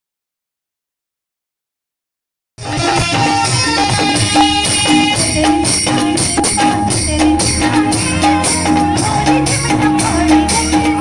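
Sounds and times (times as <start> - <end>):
jingling percussion: 2.6 - 11.0
steady drum beat: 2.6 - 11.0.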